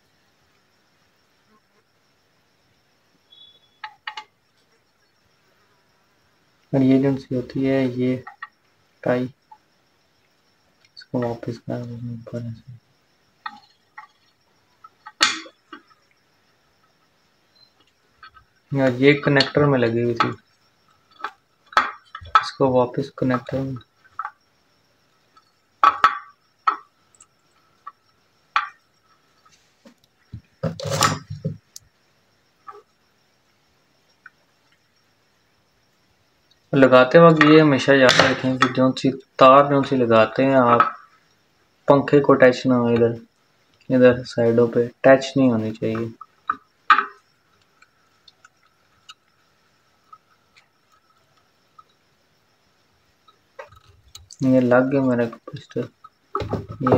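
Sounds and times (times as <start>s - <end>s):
clicks and scrapes of wires: 29.4s - 31.5s.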